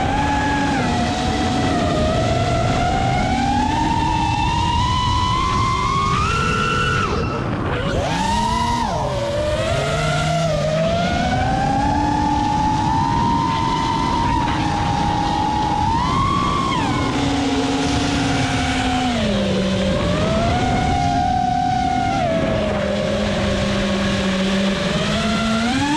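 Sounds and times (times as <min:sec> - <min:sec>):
quadcopter motors whining: 0:00.0 - 0:25.9
wind rush: 0:00.0 - 0:25.9.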